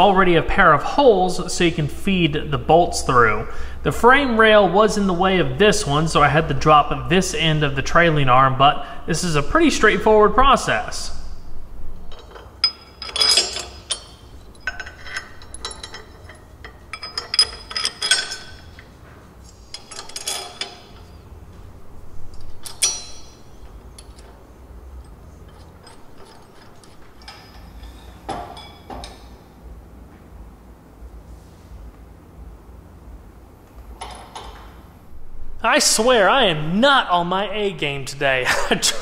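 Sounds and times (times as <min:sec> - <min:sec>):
metal parts clinking and rattling: 0:11.9 - 0:29.4, 0:34.0 - 0:34.8
ringing metallic clicks: 0:12.1 - 0:19.0, 0:19.6 - 0:21.4, 0:22.3 - 0:29.4.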